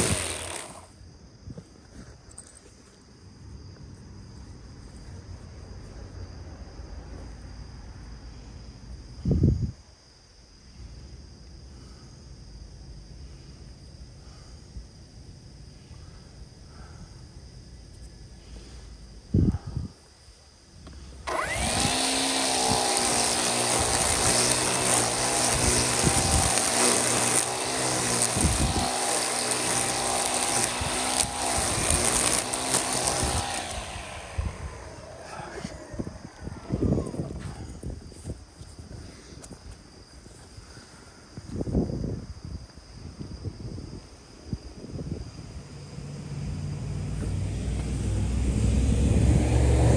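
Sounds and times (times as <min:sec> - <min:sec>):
string trimmer cutting grass: 0:00.0 - 0:00.9, 0:21.2 - 0:36.2, 0:47.0 - 0:49.9
motor vehicle rumble: 0:45.7 - 0:49.9.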